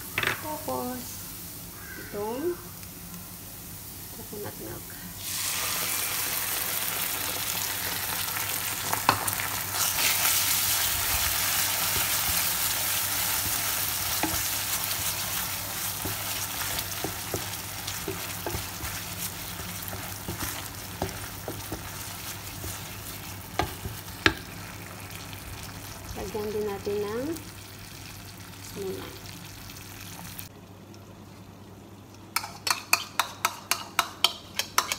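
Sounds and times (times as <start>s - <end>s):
liquid sizzling in a hot pan: 0.4s - 30.5s
spatula tapping a pan: 15.9s - 22.9s, 23.5s - 24.5s, 32.4s - 34.9s.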